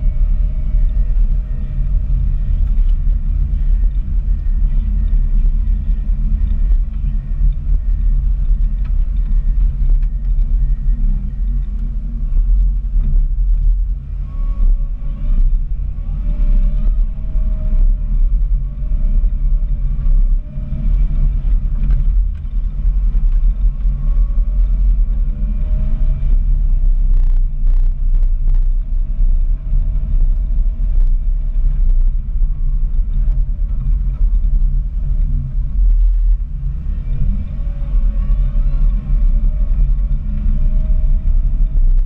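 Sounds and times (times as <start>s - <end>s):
diesel engine rumbling under load: 0.0s - 42.0s
faint machine whine: 0.0s - 42.0s.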